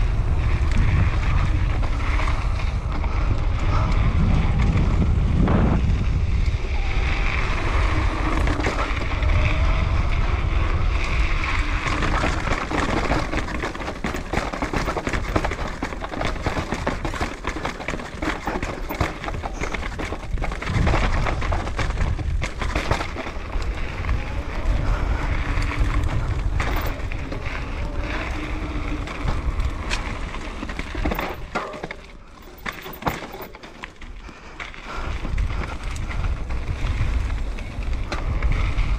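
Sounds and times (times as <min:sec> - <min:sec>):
wind buffeting microphone: 0:00.0 - 0:33.5, 0:34.1 - 0:38.9
tyres rolling over dirt: 0:00.0 - 0:38.9
bike clattering over rocks: 0:11.4 - 0:38.6.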